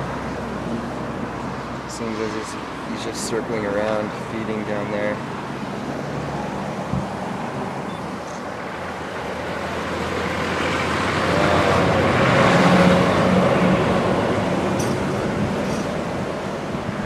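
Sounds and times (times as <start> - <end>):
vehicle passing close by: 5.3 - 17.0.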